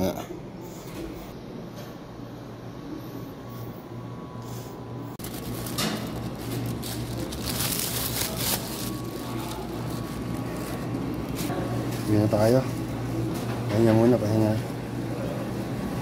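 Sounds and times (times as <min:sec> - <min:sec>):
plastic bag rustling: 0:05.2 - 0:12.9.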